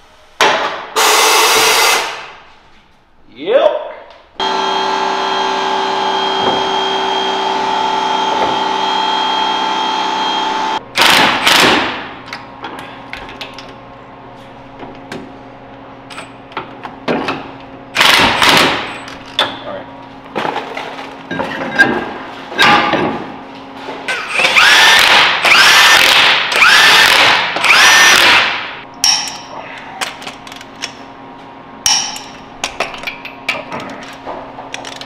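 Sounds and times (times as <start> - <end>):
impact wrench bursts: 1.0 - 2.4, 4.4 - 12.1, 18.0 - 19.0, 24.1 - 28.8
power tool motor whine: 4.4 - 11.6, 24.4 - 28.5.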